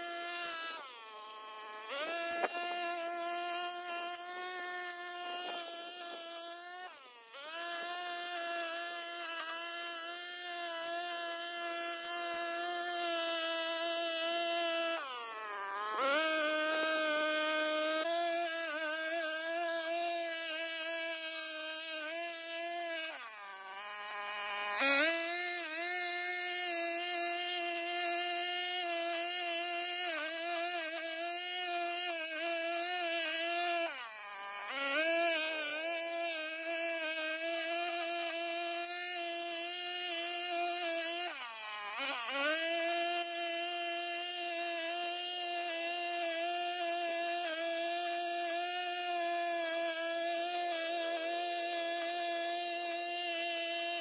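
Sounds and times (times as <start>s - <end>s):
brush cutter engine whining: 0.0s - 54.0s.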